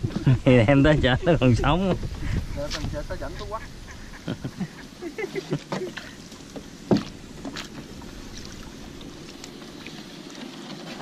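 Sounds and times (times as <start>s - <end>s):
steady low hum: 0.0s - 10.5s
water noise: 0.0s - 11.0s
knock on wooden boat: 6.8s - 7.7s.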